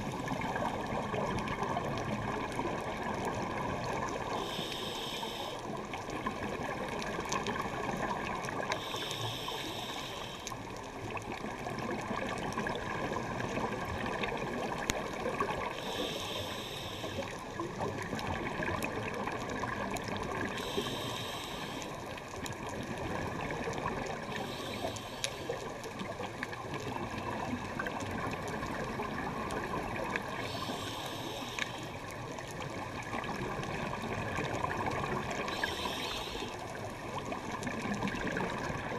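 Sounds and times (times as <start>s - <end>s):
underwater watery rush: 0.0s - 38.9s
regulator breath hiss: 4.3s - 5.7s, 8.8s - 10.6s, 15.8s - 17.4s, 20.6s - 22.0s, 24.3s - 25.7s, 30.4s - 32.0s, 35.5s - 36.6s
faint clicks: 8.4s - 11.5s, 23.6s - 26.9s, 27.8s - 38.8s.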